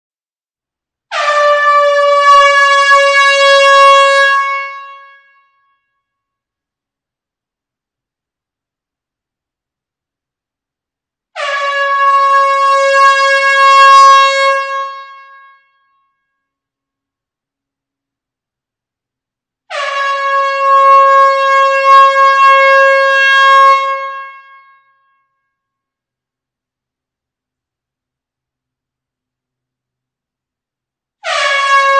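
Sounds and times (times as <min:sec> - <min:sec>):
air horn blast: 0:01.1 - 0:05.3, 0:11.4 - 0:15.7, 0:19.7 - 0:24.8, 0:31.2 - 0:31.9.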